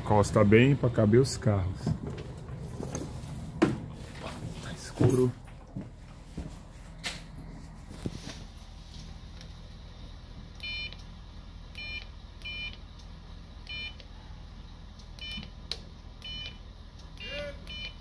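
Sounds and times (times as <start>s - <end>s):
steady low hum: 0.0s - 18.0s
short electronic beeps: 17.2s - 18.0s.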